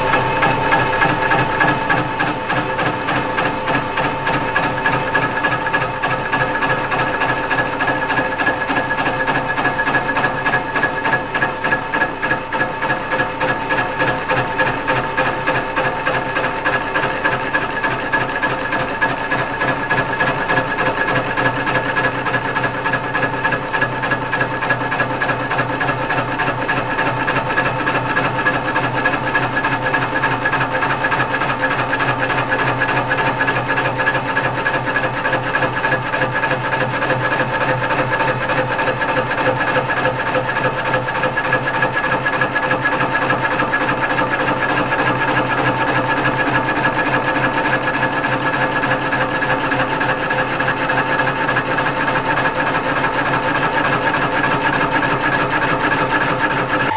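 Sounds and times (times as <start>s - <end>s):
lathe motor humming and whining: 0.0s - 56.9s
cutting tool scraping metal: 21.1s - 56.9s.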